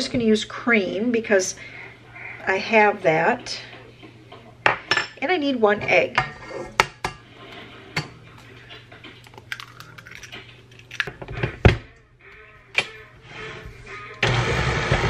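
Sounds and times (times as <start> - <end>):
egg cracking against metal bowl: 9.2 - 11.3.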